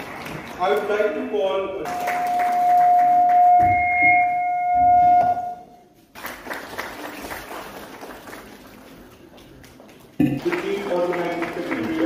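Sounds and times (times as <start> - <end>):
faint hall noise: 0.0 - 12.0
microphone feedback whistling: 1.9 - 5.8.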